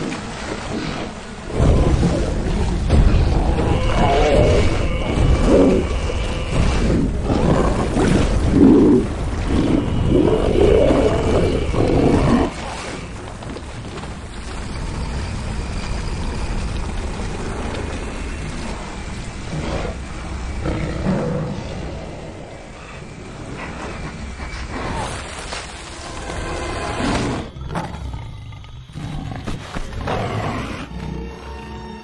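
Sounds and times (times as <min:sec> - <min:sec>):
steady rain: 0:00.0 - 0:27.6
big cat growling and snarling: 0:01.5 - 0:13.0.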